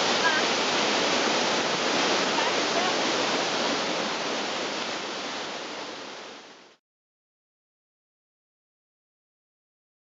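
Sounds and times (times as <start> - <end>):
waterfall rushing: 0.0 - 6.8.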